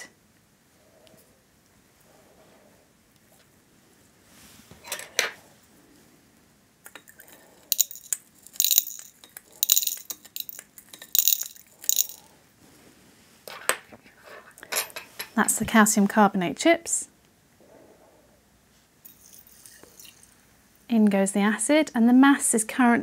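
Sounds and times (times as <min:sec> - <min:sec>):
stone chips clinking in glass flask: 0:06.9 - 0:12.2, 0:19.1 - 0:20.4.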